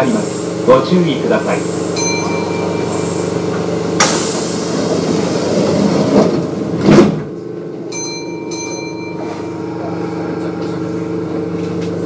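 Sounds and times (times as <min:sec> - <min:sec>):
train doors banging shut: 0:02.1 - 0:07.4
train door hiss: 0:04.0 - 0:06.4.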